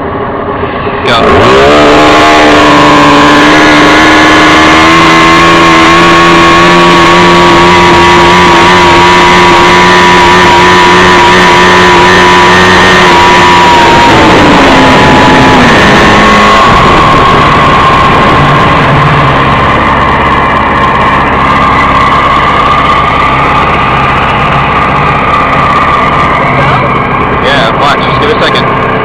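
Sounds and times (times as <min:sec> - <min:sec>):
engine at high revs: 0:00.0 - 0:29.0.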